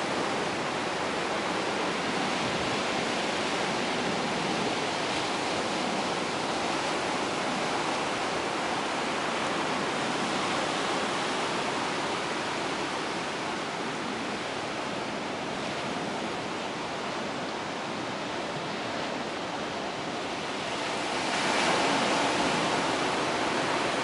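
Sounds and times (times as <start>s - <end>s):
ocean surf washing onto shore: 0.0s - 24.0s.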